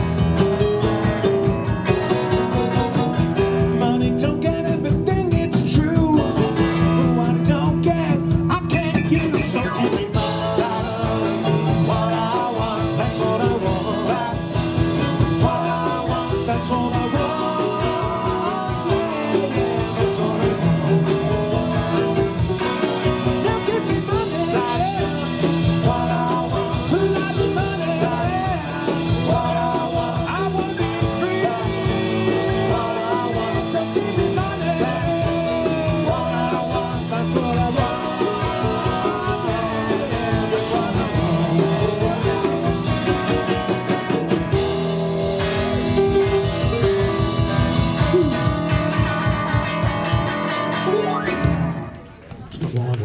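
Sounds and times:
drums with steady beat: 0:00.0 - 0:50.6
electric guitars: 0:00.0 - 0:53.0
keyboard: 0:00.0 - 0:53.0
man singing into a microphone: 0:03.7 - 0:43.7.

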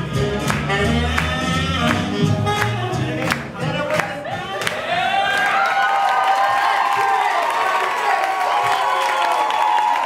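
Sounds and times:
swing jazz band playing: 0:00.0 - 0:04.8.

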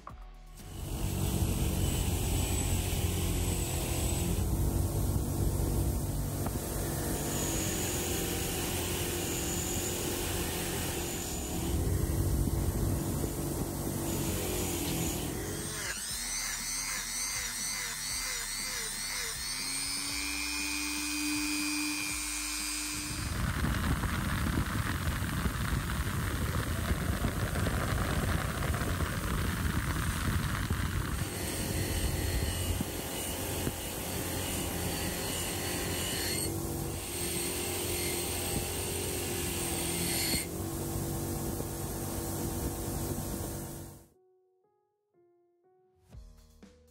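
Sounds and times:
background music: 0:00.0 - 0:02.3, 0:44.2 - 0:46.9
bench grinder motor running: 0:00.6 - 0:44.1
rotary tool wire brush scrubbing metal: 0:06.6 - 0:21.2.

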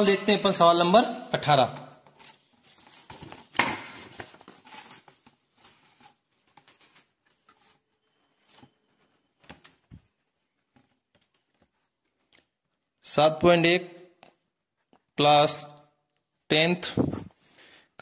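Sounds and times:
paper rustling: 0:02.0 - 0:12.8.

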